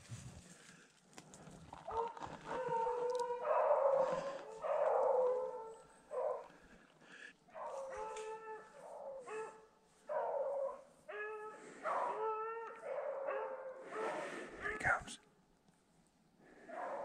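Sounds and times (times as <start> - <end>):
beagle baying: 1.9 - 6.6, 7.5 - 14.2.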